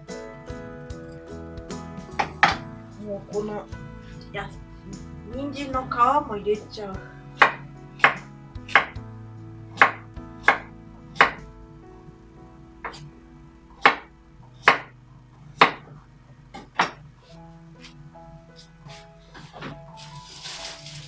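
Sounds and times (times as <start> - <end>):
knife chopping on wooden board: 7.4 - 9.0, 9.8 - 11.4, 13.8 - 14.9, 15.6 - 15.8.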